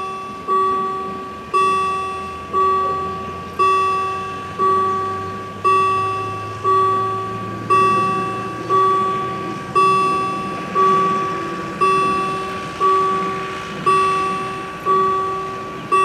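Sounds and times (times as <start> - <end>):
level crossing bell ringing: 0.0 - 16.0.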